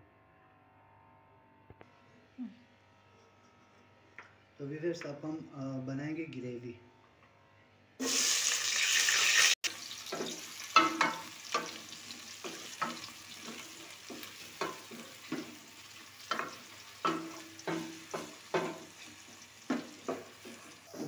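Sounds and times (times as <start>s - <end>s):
onions sizzling in oil: 8.0s - 21.0s
wooden spoon scraping a pot: 10.0s - 21.0s.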